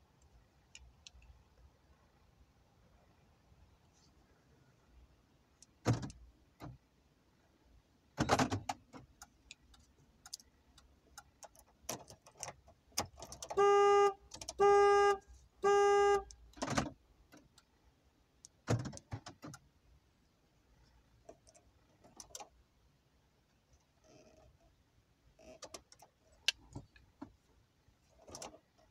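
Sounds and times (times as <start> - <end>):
car lock clicks and clunks: 5.8 - 6.8, 8.2 - 9.2, 11.4 - 13.6, 14.3 - 14.6, 16.5 - 17.5, 18.6 - 19.7
car horn beeps: 13.4 - 16.4.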